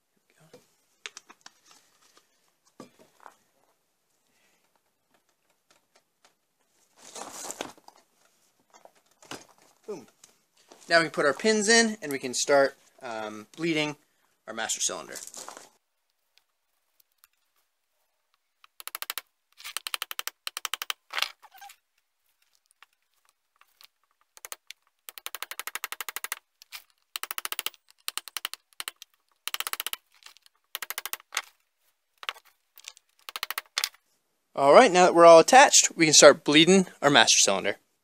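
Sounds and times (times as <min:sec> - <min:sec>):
small hammer tapping a punch: 0:27.2 - 0:30.0.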